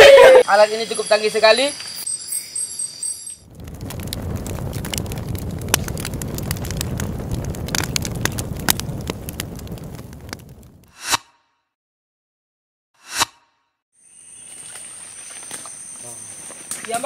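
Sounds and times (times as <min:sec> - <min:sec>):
campfire crackling and popping: 0:03.4 - 0:10.9.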